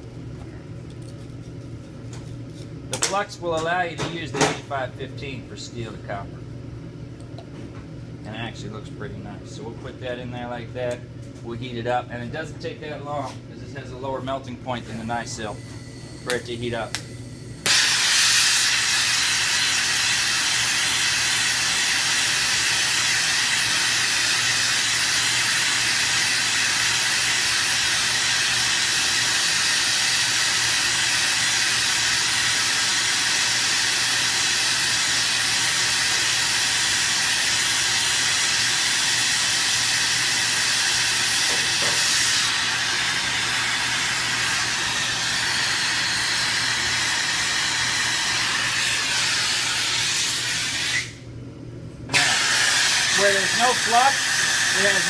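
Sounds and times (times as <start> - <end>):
torch flame hissing: 17.6 - 51.2, 52.1 - 55.0.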